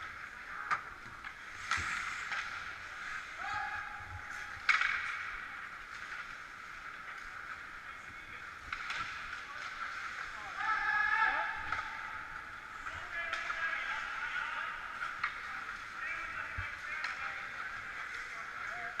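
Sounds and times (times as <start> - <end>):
skates scraping on ice: 0.0 - 19.0
hockey sticks and puck knocking: 0.5 - 2.8, 4.3 - 7.6, 8.6 - 10.3, 12.9 - 19.0.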